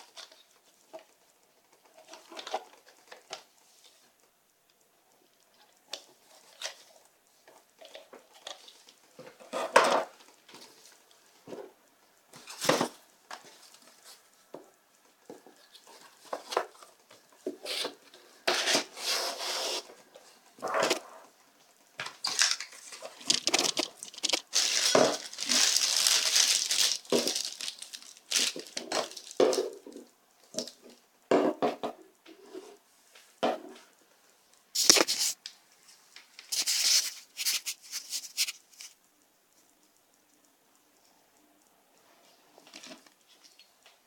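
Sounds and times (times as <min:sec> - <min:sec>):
plastic packaging crinkling: 0:22.0 - 0:29.8, 0:34.8 - 0:35.4.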